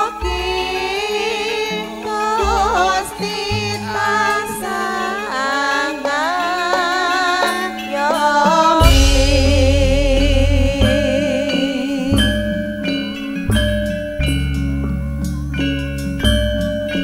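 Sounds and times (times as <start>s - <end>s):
woman singing: 0.0s - 13.1s
band accompaniment with deep bass: 8.8s - 17.0s.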